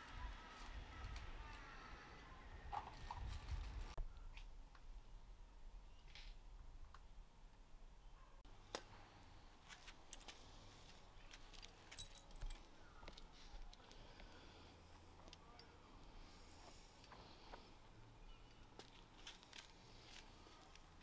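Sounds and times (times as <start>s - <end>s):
metallic clinks of steel parts: 11.3s - 13.9s, 18.4s - 19.5s.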